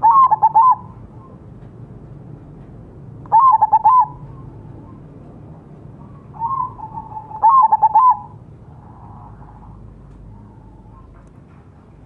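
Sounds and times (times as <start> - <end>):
dove cooing: 0.0 - 1.4, 3.3 - 5.0, 6.1 - 8.4.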